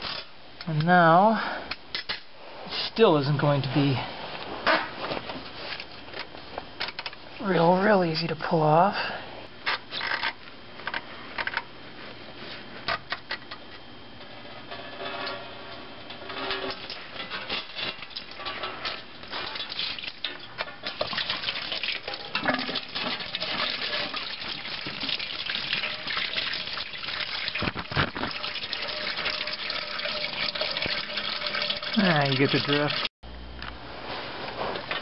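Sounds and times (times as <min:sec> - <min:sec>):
coolant pouring into drain pan: 0:19.3 - 0:33.1.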